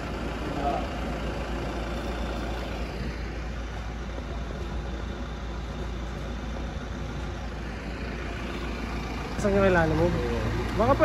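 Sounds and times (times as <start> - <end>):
vehicle engine idling: 0.0 - 11.0.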